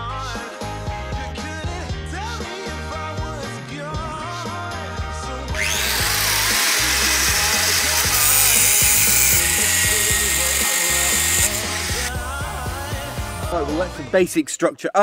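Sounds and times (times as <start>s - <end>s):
background music: 0.0s - 15.0s
angle grinder grinding metal: 5.5s - 13.5s.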